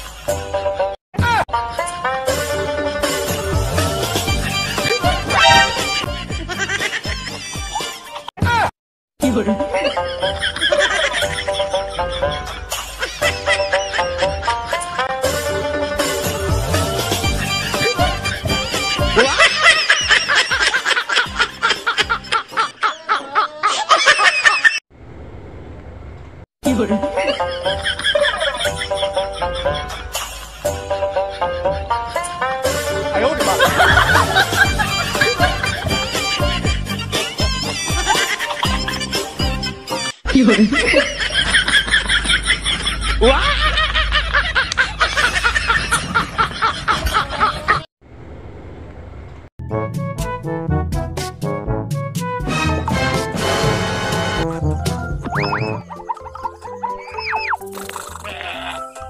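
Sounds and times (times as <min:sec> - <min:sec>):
music: 0:00.0 - 0:22.5, 0:26.6 - 0:40.2, 0:49.6 - 0:59.0
rapid laughter: 0:09.7 - 0:15.1, 0:17.3 - 0:24.8, 0:27.2 - 0:32.4, 0:33.3 - 0:36.4, 0:37.0 - 0:39.3, 0:40.3 - 0:47.9, 0:55.6 - 0:57.4
background music with beat: 0:31.7 - 0:40.1, 0:49.6 - 0:56.0.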